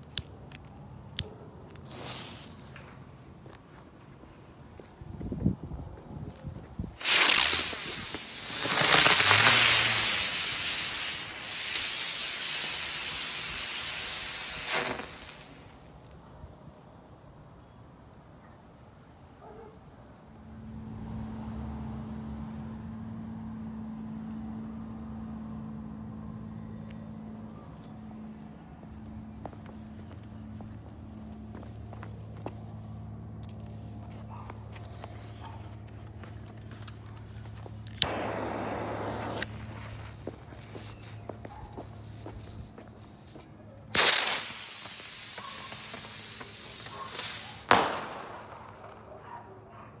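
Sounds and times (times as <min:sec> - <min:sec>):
spinning fireworks hissing: 0:00.0 - 0:03.5, 0:06.8 - 0:16.0, 0:34.7 - 0:49.1
crickets chirping: 0:00.0 - 0:50.0
loud firework burst: 0:07.0 - 0:15.9, 0:38.0 - 0:40.0, 0:43.9 - 0:49.1
small crackles: 0:07.0 - 0:16.2.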